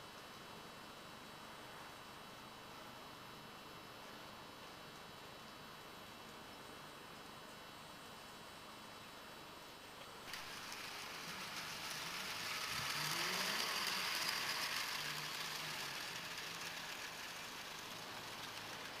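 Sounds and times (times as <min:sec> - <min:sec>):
model train running on track: 0:10.3 - 0:19.0.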